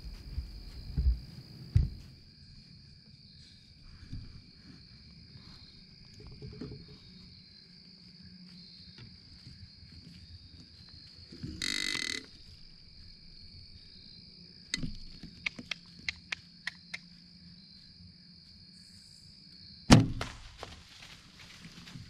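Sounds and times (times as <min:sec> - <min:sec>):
high insect drone: 0:00.0 - 0:20.0
bow string release and arrow hit: 0:19.9 - 0:20.8
crackling in dry leaves: 0:20.2 - 0:22.0.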